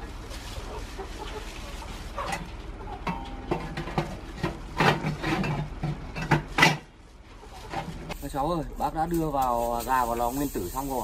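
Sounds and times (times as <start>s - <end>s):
steel oven clanking and scraping: 2.2s - 6.9s.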